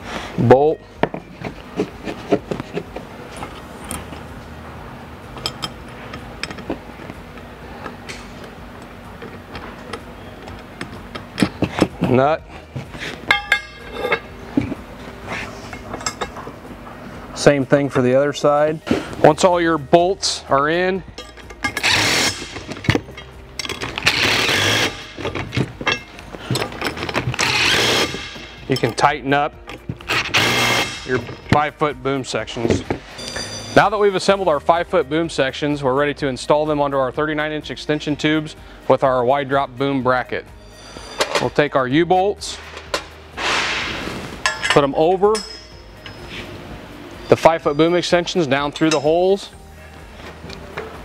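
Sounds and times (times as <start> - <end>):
metal hardware clicks: 21.2 - 31.6
cordless drill running: 24.1 - 25.0, 27.4 - 28.2, 30.3 - 30.9.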